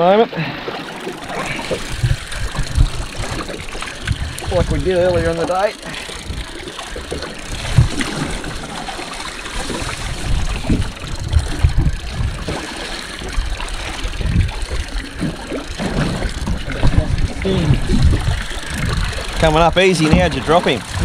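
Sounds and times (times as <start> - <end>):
water lapping against boat hull: 0.0 - 21.0
low thumps: 1.7 - 5.5, 6.3 - 8.2, 14.2 - 19.5.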